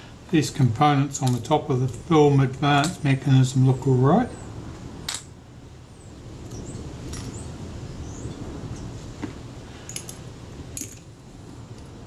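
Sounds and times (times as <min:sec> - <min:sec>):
low background hum: 0:00.0 - 0:12.0
small metal parts clicking: 0:09.9 - 0:10.2.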